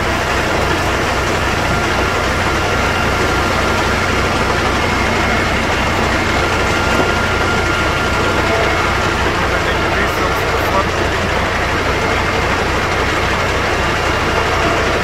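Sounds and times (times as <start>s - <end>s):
diesel engine running: 0.0s - 15.0s.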